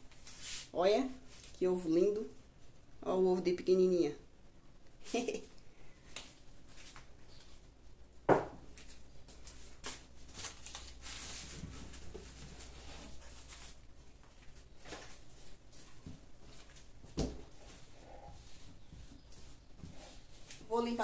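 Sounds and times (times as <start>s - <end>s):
rustling: 8.7s - 21.0s.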